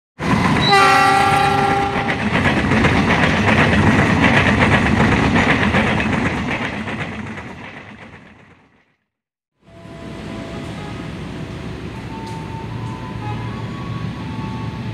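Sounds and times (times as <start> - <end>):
train carriages rumbling and clattering: 0.2 - 9.0
locomotive horn: 0.6 - 2.2, 9.7 - 14.9.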